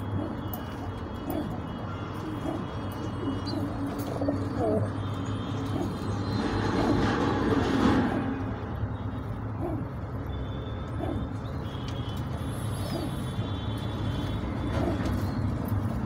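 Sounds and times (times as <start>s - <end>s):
pigeons cooing: 0.0s - 8.6s, 9.4s - 11.8s, 12.4s - 16.0s.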